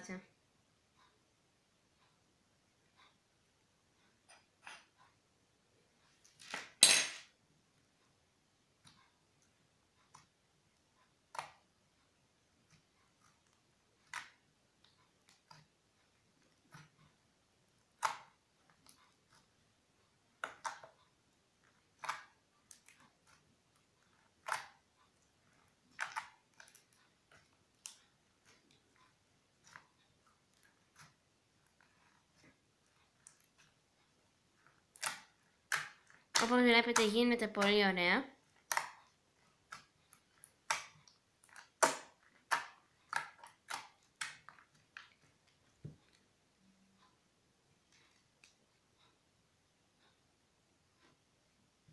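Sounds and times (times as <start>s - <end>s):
slime squelching: 11.0s - 46.4s.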